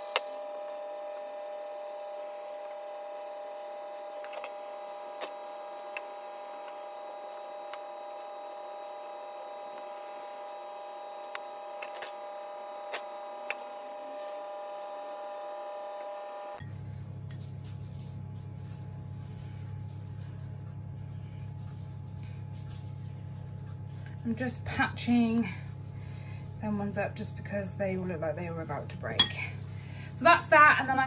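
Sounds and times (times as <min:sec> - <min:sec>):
appliance motor humming: 0:00.0 - 0:16.9.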